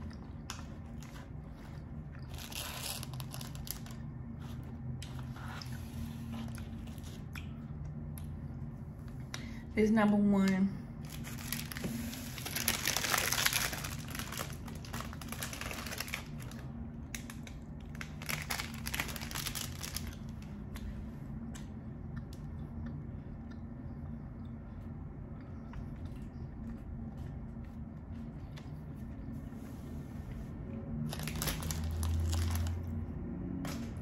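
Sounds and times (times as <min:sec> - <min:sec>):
plastic wrappers crinkling: 0:00.4 - 0:04.2, 0:11.0 - 0:20.5, 0:31.0 - 0:33.0.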